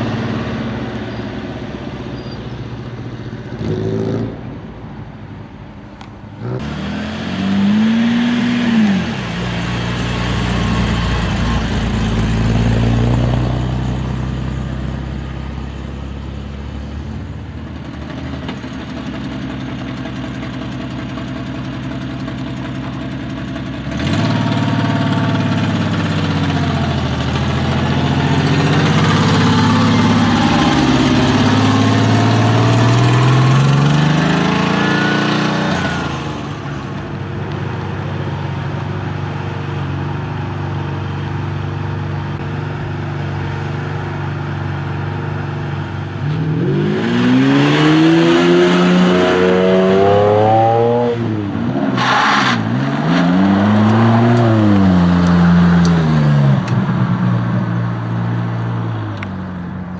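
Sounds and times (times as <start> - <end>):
sports car engines driving past: 0.0 - 59.9
engine revving: 3.5 - 4.4, 6.4 - 14.0, 23.8 - 36.6, 46.2 - 57.0.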